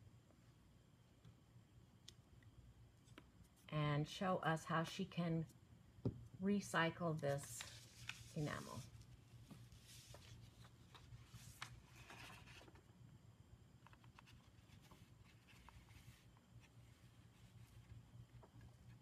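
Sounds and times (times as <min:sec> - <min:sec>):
paper rustling: 0:07.4 - 0:12.8, 0:13.9 - 0:19.0.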